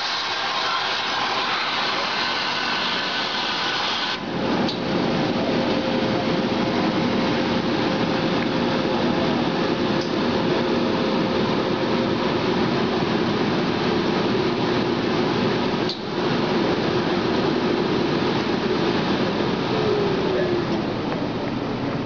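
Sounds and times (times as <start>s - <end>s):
steam hissing: 0.0s - 4.3s
air blower rushing: 0.0s - 15.8s.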